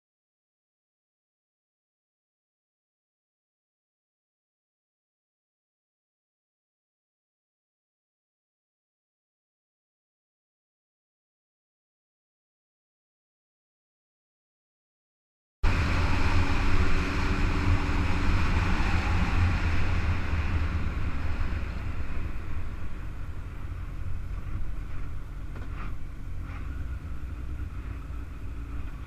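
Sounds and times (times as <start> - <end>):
low rumble: 15.6 - 29.0
wind rushing on microphone: 15.6 - 29.0.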